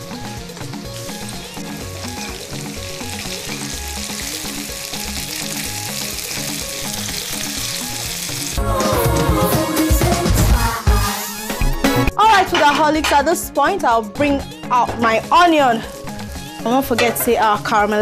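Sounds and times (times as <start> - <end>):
onions sizzling in oil: 0.0 - 8.6.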